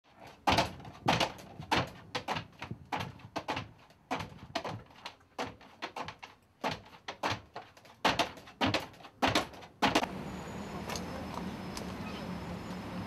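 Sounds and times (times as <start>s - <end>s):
thuds and knocks in a cage: 0.1s - 10.1s.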